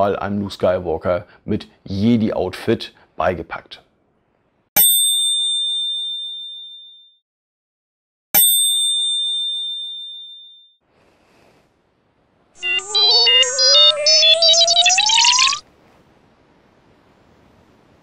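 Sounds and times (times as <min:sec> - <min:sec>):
bright bell ding: 0:08.4 - 0:10.8
short synthesizer jingle: 0:12.6 - 0:15.6.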